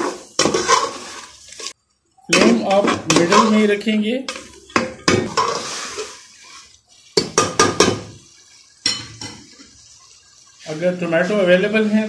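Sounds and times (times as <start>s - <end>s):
metal ladle scraping pot: 0.0s - 10.7s
ladle knocking on pot: 7.2s - 8.1s.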